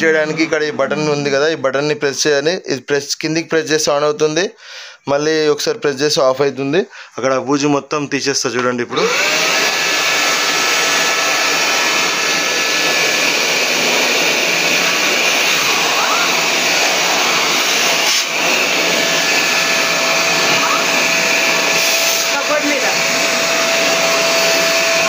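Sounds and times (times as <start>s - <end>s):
vacuum cleaner running: 8.9s - 25.0s.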